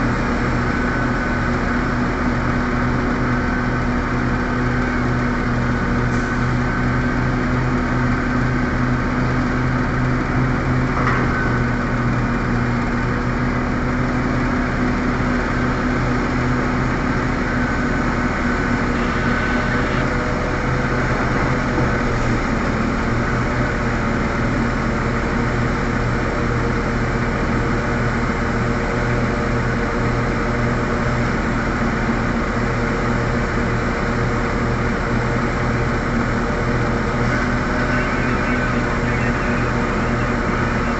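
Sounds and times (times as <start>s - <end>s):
deep diesel engine hum: 0.0s - 40.9s.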